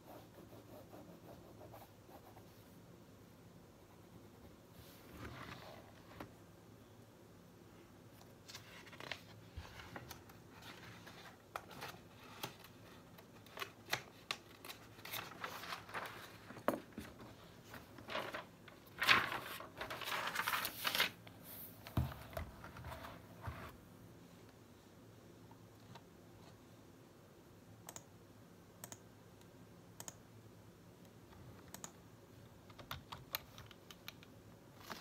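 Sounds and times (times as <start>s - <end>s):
paper pages rustling: 8.4s - 23.8s, 34.8s - 35.0s.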